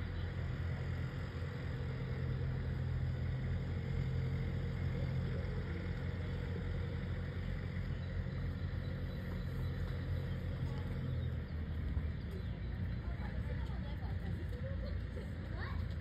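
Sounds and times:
faint constant hum: 0.0 - 16.0.

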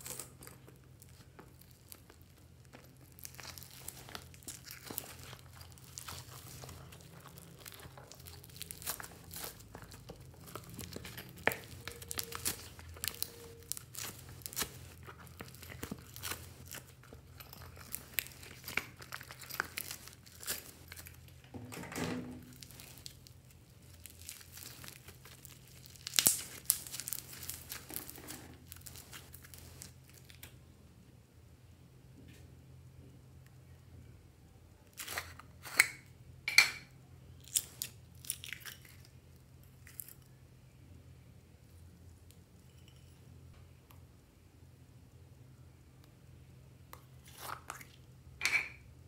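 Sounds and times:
slime crackling and popping: 0.0 - 21.4, 22.4 - 30.6.

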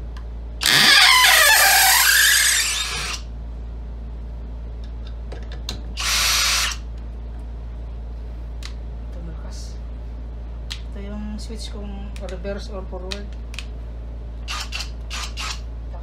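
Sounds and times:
drill driving screw into wood: 0.6 - 3.2, 6.0 - 6.8, 14.5 - 15.6.

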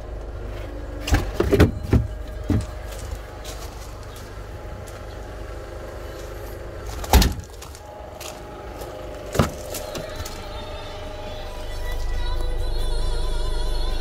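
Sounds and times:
car tailgate shutting thud: 1.0 - 2.9, 6.9 - 7.8, 9.2 - 10.4.

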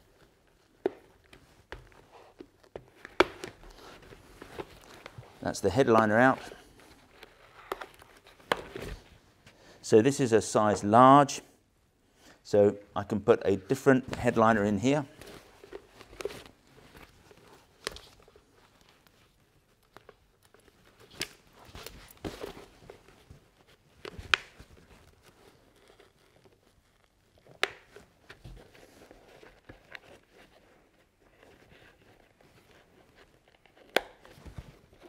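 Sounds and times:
fabric rustling and rubbing: 3.6 - 9.4, 14.0 - 35.0.

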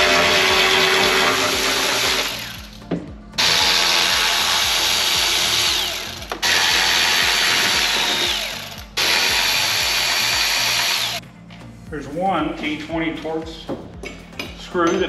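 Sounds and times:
electric screwdriver whining: 0.0 - 2.8, 3.4 - 11.2.

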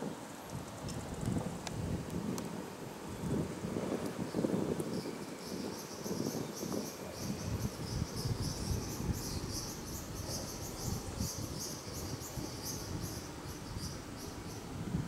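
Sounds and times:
insects chirping: 4.3 - 14.8.

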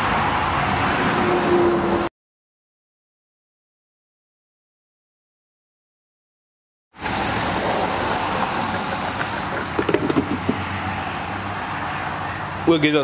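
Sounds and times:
fish sizzling in deep fryer oil: 7.0 - 9.9.

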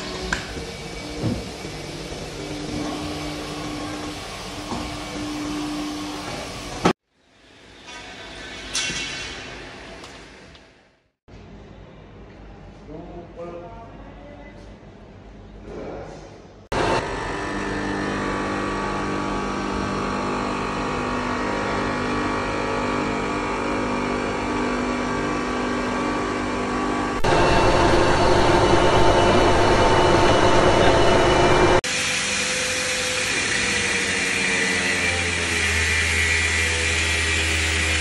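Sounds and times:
workshop machinery humming: 0.0 - 8.7, 14.2 - 38.0
rough machine noise: 16.7 - 38.0
grinder on glass: 29.5 - 38.0.

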